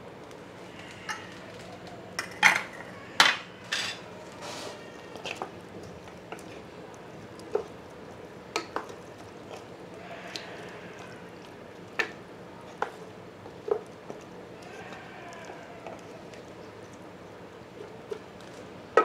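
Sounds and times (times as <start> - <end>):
wet squelching of curry: 4.3 - 18.7.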